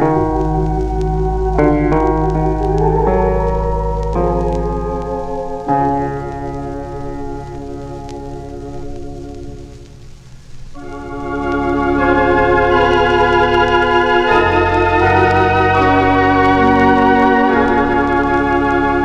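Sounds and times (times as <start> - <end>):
organ chords: 0.0 - 19.0
deep organ bass note: 10.8 - 19.0.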